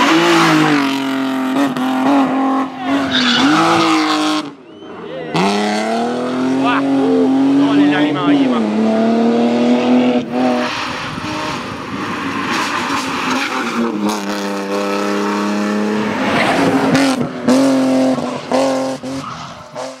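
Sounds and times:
rally car engine at hard throttle: 0.0 - 20.0
tyres squealing: 2.8 - 4.0.

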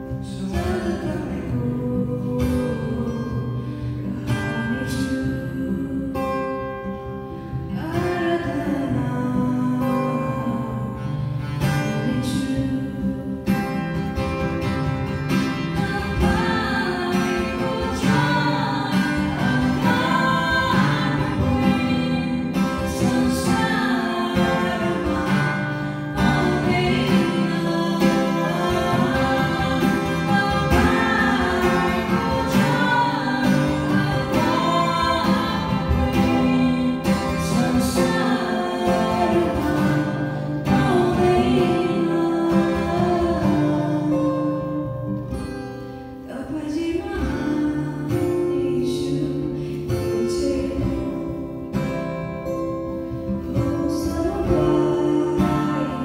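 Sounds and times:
woman singing into microphone: 0.0 - 45.3, 46.2 - 52.2, 53.1 - 56.0
acoustic guitar: 0.0 - 56.0.

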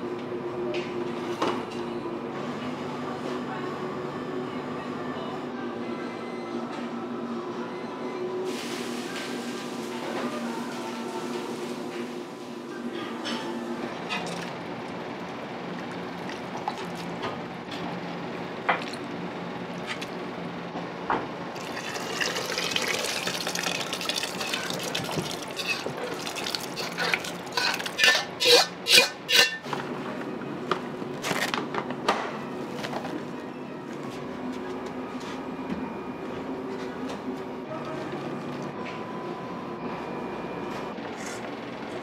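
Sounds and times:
kitchen hum: 21.6 - 35.5
ladle stirring sauce in wok: 25.4 - 29.6
ladle scraping wok: 25.5 - 29.8.

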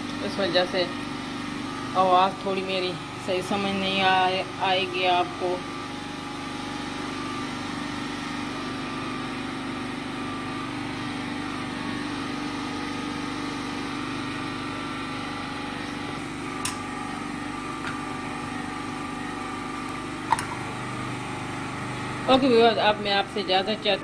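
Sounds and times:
generator engine running: 0.0 - 24.0.

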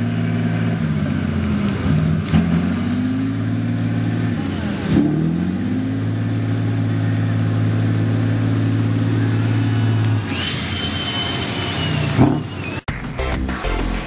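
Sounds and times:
diesel truck engine running hard: 0.0 - 12.9
loud hiss with high whistle: 9.8 - 12.8.

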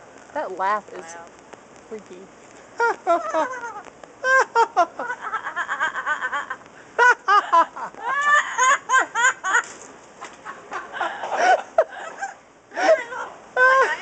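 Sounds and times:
parrot mimicking human laugh: 2.8 - 9.7.

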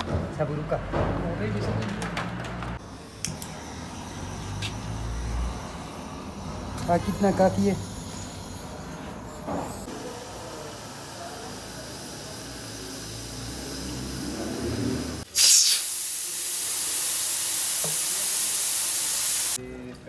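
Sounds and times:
gas burner flame rumbling: 0.3 - 19.6
pressure cooker steam hiss: 9.9 - 19.6.

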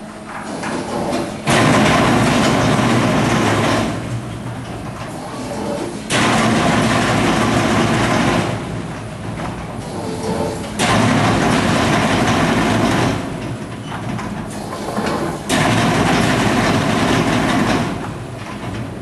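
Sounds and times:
machine running steadily: 0.0 - 19.0.

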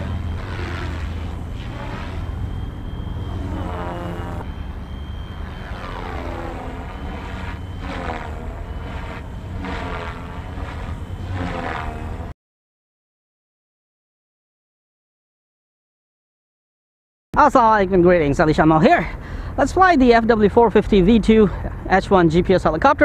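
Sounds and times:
helicopter rotor blades buzzing: 0.0 - 12.4.

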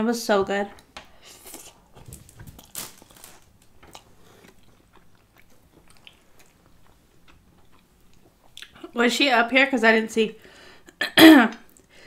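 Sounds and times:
soft chewing with wet clicks: 3.7 - 9.0.

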